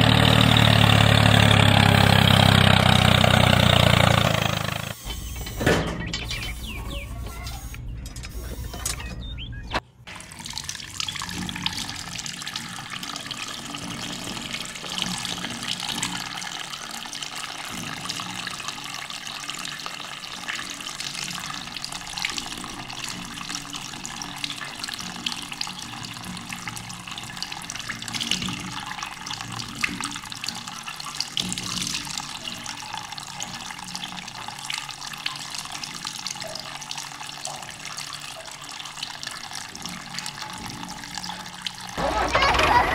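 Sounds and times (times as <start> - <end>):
water pouring and splashing: 10.1 - 42.9.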